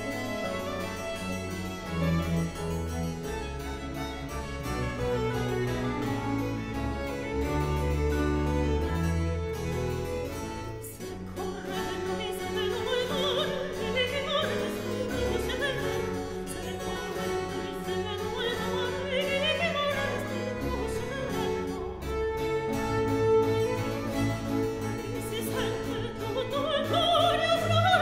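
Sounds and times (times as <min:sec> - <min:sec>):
harpsichord and strings playing: 0:00.0 - 0:28.0
soprano singing with vibrato: 0:10.8 - 0:22.2, 0:25.0 - 0:28.0.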